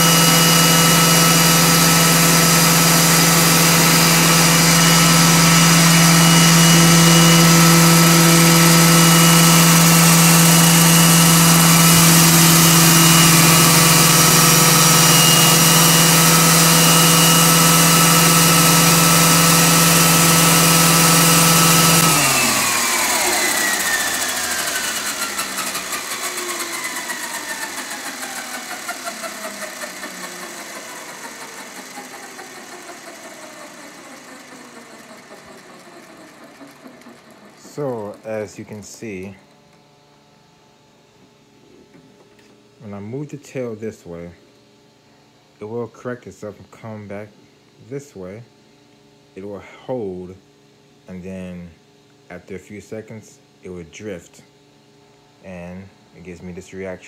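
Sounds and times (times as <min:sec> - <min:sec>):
rc helicopter motor whine: 0:00.0 - 0:38.2.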